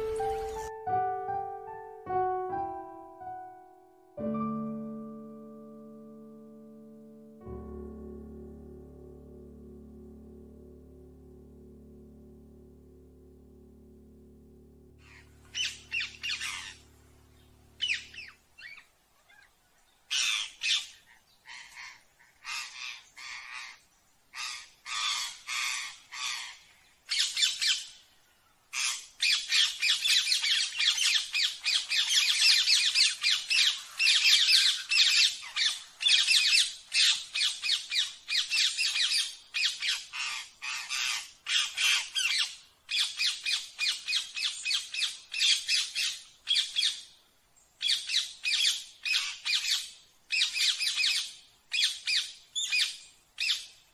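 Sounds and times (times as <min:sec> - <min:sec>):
parakeet squawking: 0:15.0 - 0:18.3.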